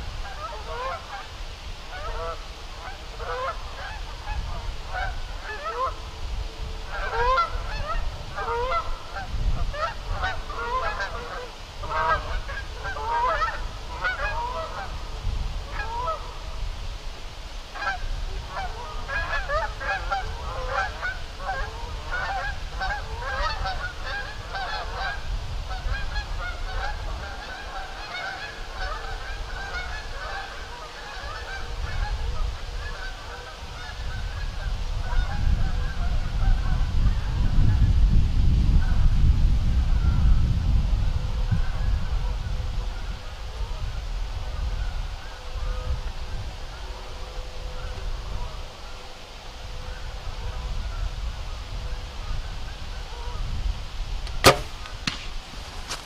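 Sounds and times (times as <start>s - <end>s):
flock of birds calling: 0.0s - 16.6s, 17.7s - 37.3s.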